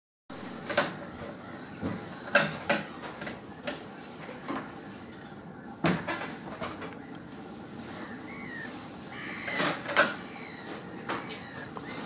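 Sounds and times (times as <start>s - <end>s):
gulls calling harshly: 4.7s - 12.0s.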